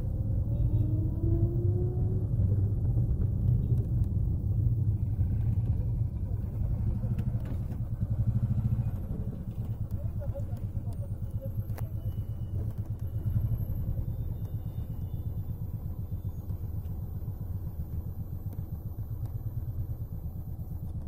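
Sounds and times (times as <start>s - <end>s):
vehicle engine and tyre rumble: 0.0s - 21.0s.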